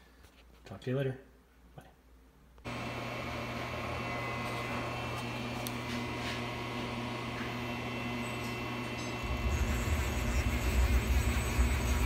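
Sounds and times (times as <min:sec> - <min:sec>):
mill machine humming: 0:02.6 - 0:12.0.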